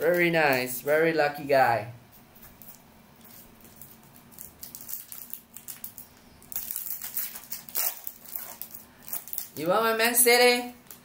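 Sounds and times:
foil wrapper crinkling: 2.4 - 11.0
foil pack tearing open: 3.4 - 9.6.

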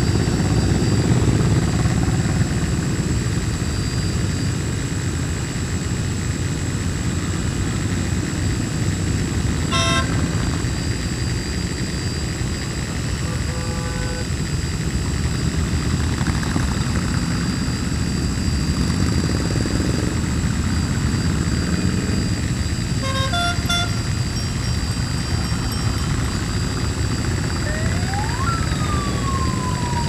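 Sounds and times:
drone propellers whining: 7.9 - 30.0
horn toots: 9.7 - 10.4, 13.2 - 14.3, 23.0 - 26.1.

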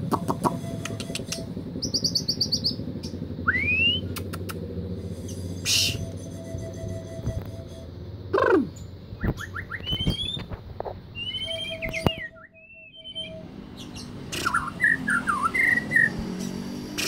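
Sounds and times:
bird singing whistled notes: 0.3 - 4.2, 5.2 - 8.0, 8.6 - 16.8.

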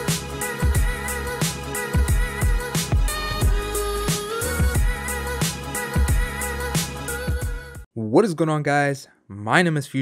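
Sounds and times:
steady drum beat: 0.0 - 7.6.

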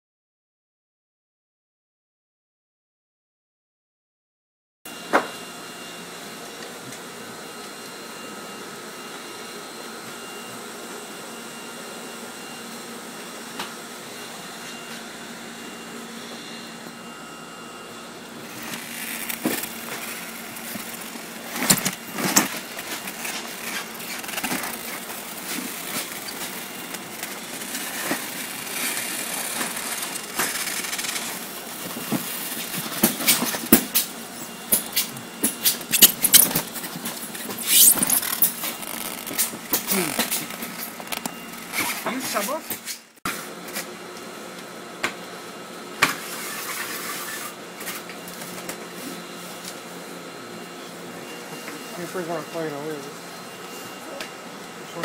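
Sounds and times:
machine hum: 12.9 - 42.4.

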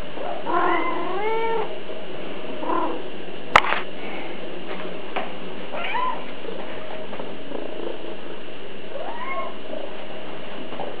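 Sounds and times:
cat meowing: 0.5 - 1.7, 5.8 - 6.2, 9.0 - 9.6.

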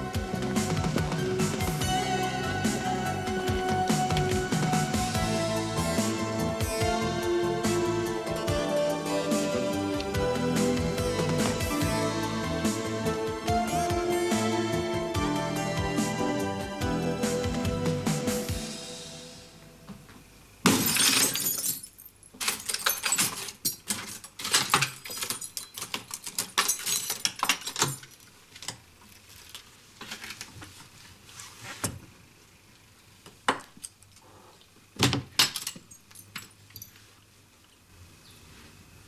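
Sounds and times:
glass pane smashing: 20.6 - 28.0
glass clinks and knocks: 20.7 - 28.1.

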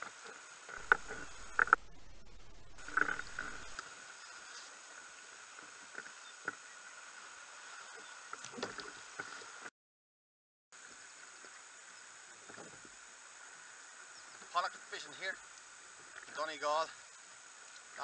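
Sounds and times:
faint steady hiss: 0.0 - 9.7, 10.8 - 18.0
constant high tone: 0.7 - 3.8.

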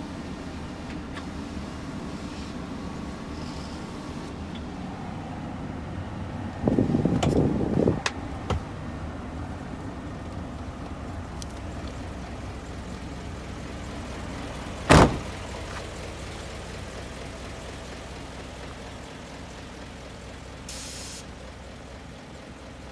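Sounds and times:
diesel truck engine idling: 0.0 - 22.9
cab door slamming: 7.0 - 8.8, 14.9 - 15.4
brief hiss: 20.7 - 21.3.

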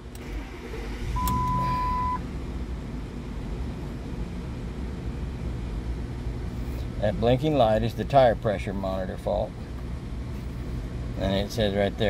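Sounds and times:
car engine starting and idling: 0.0 - 8.6
electronic beep: 1.2 - 2.2.

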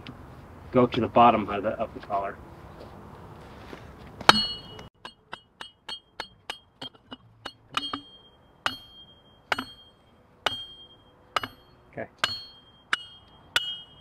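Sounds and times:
metal striking metal: 4.3 - 14.0.

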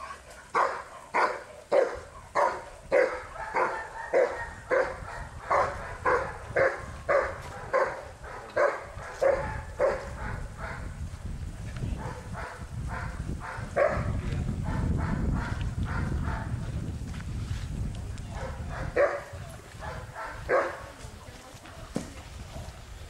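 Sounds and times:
dog barking loudly: 0.0 - 10.9, 12.0 - 16.6, 18.3 - 20.9.

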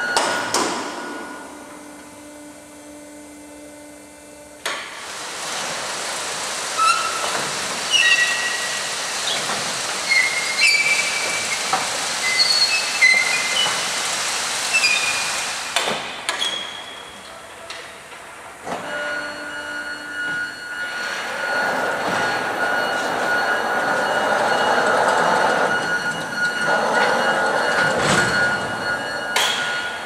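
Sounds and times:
low machine hum: 0.0 - 5.9
steady rushing hiss: 4.9 - 16.4
crates squeaking: 9.3 - 13.9.

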